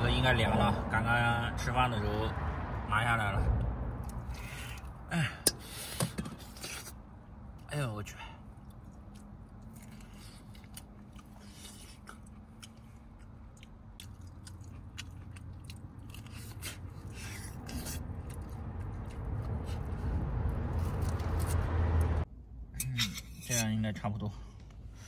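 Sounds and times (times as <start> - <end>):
chewing and gnawing on bones: 8.6 - 21.6
low rumble: 18.0 - 22.7.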